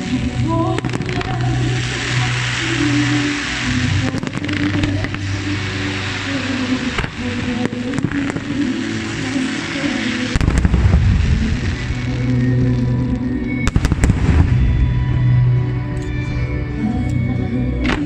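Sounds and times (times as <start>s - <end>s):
music: 0.0s - 18.0s
deep rumble: 10.3s - 16.9s.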